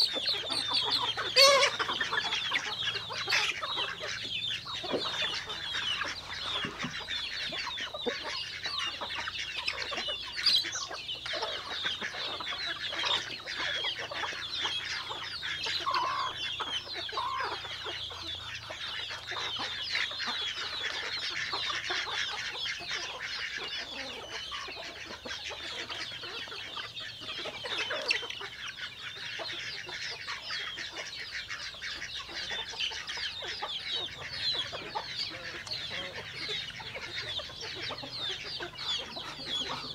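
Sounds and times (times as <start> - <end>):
chickens calling: 0.0 - 39.9.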